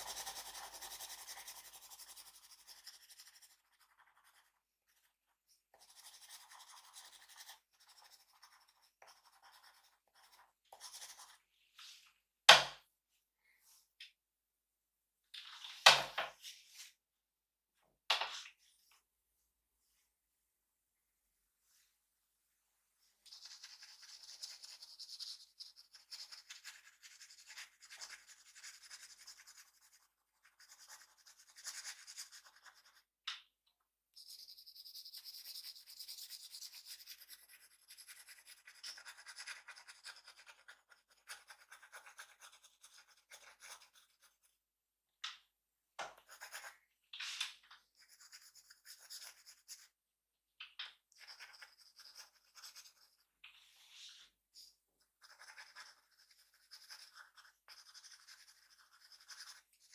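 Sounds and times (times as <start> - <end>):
pencil scratching on paper: 0.0 - 11.5, 23.3 - 33.1, 34.2 - 44.6, 46.2 - 46.8, 48.0 - 49.9, 51.1 - 59.9.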